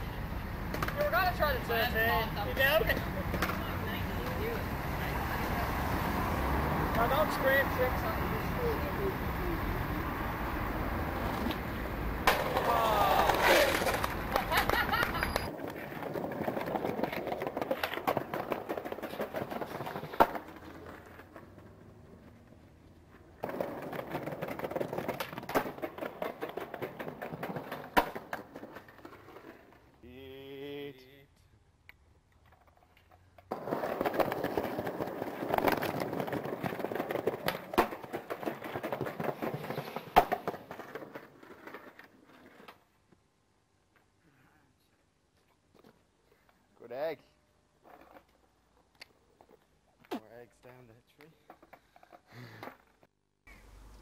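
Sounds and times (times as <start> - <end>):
skateboard wheels rolling on concrete: 0.0 - 44.2, 44.8 - 54.0
skateboard clack: 0.6 - 9.6, 10.2 - 29.9, 32.3 - 42.9, 51.2 - 53.7
wheels knocking at slab joints: 13.4 - 29.6, 32.5 - 42.6.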